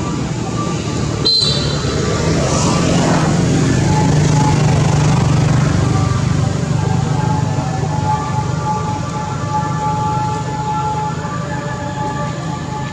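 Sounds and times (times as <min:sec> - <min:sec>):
road noise: 0:00.0 - 0:12.9
vehicle engine running: 0:00.9 - 0:11.0.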